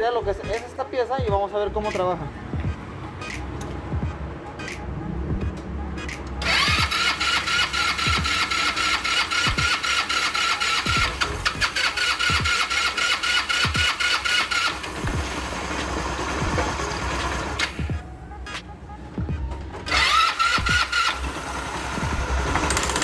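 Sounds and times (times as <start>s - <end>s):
scooter engine whine: 5.2s - 23.0s
rapid ticking of belt drive: 6.4s - 17.8s.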